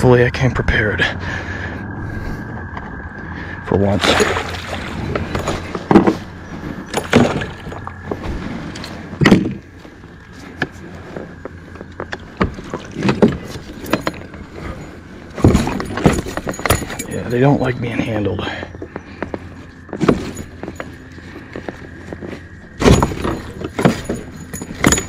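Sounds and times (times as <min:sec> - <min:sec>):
fish splashing: 0:03.9 - 0:05.7.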